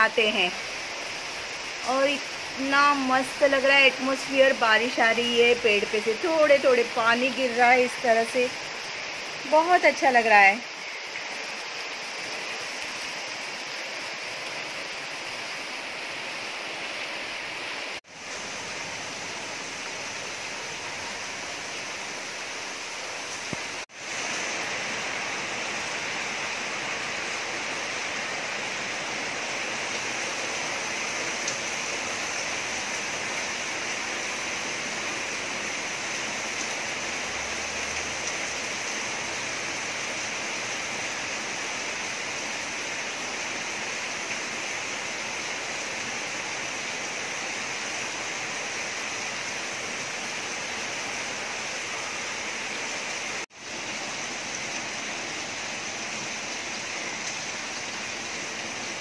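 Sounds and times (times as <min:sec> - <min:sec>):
rain falling on foliage: 0:00.0 - 0:59.0.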